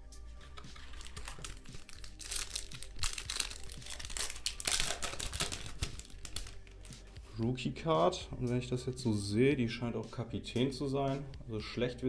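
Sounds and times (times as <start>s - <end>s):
foil wrapper crinkling and tearing: 0.8s - 7.1s.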